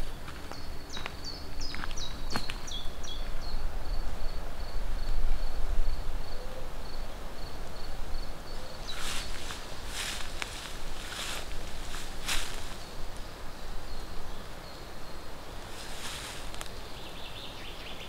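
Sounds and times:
footsteps through grass: 8.8 - 13.2, 15.6 - 16.8.

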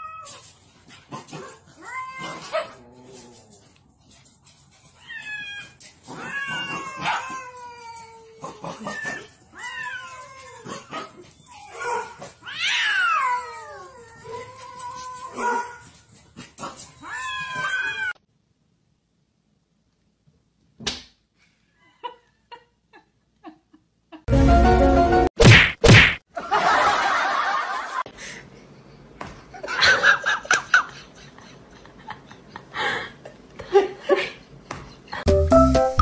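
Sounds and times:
cats yowling: 1.7 - 3.6, 5.0 - 15.8, 17.0 - 18.2.

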